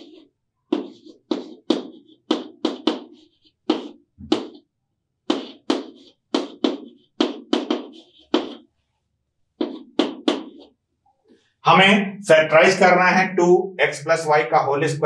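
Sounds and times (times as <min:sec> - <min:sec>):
chalk tapping and scraping on chalkboard: 0:00.0 - 0:04.6, 0:05.3 - 0:08.7, 0:09.6 - 0:10.7.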